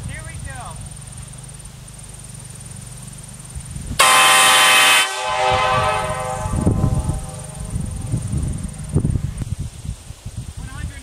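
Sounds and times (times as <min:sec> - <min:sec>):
locomotive air horn blast: 0:04.0 - 0:08.8.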